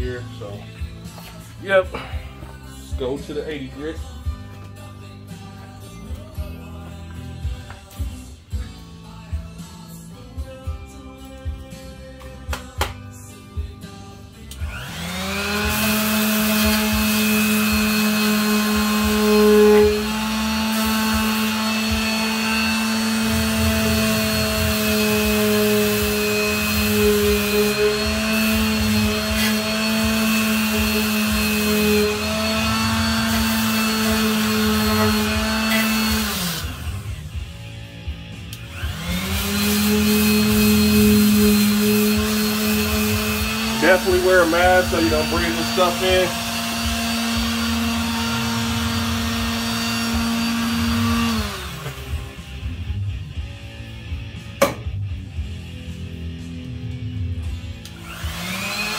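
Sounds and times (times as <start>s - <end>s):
electric sander sanding metal: 14.6s - 37.4s, 38.4s - 52.8s, 57.9s - 58.9s.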